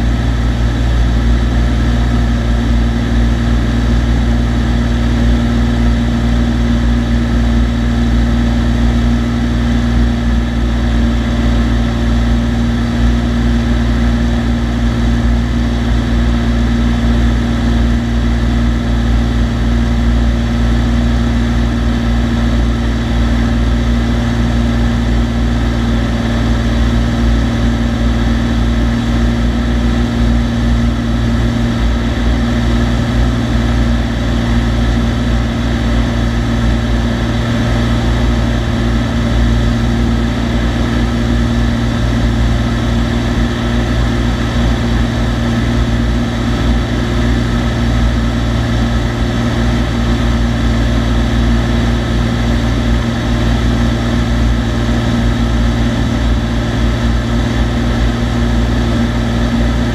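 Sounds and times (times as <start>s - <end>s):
propeller plane engine drone: 0.0s - 59.9s.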